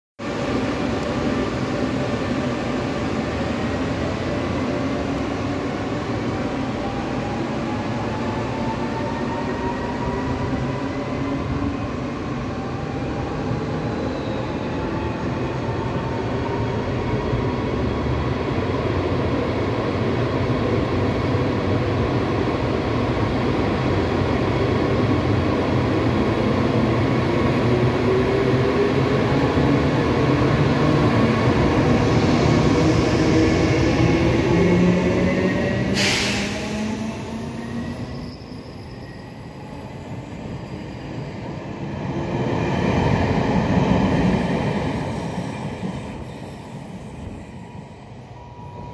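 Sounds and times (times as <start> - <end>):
electric locomotive inverter whine: 36.5 - 48.9.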